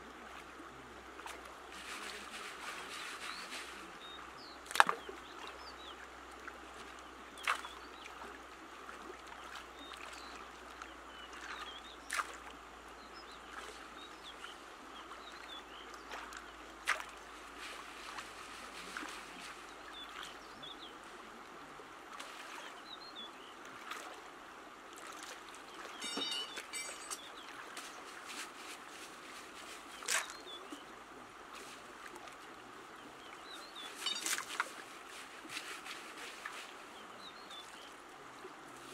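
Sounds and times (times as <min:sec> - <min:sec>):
river water trickling and sloshing: 0:00.0 - 0:38.9
birds chirping: 0:25.8 - 0:28.0, 0:33.0 - 0:34.6.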